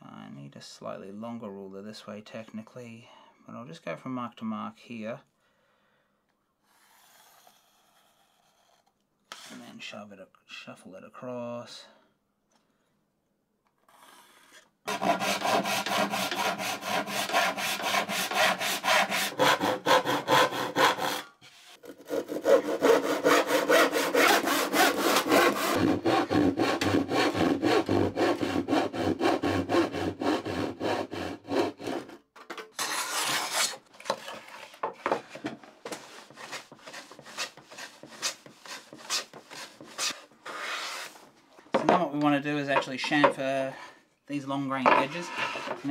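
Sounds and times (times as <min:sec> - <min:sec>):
hand saw cutting wood: 0:13.9 - 0:41.2, 0:45.0 - 0:45.9.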